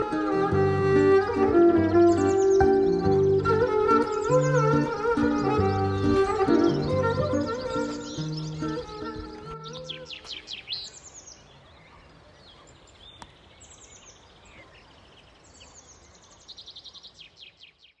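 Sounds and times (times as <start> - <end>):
held music notes: 0.0 - 10.3
songbirds chirping and trilling: 0.0 - 18.0.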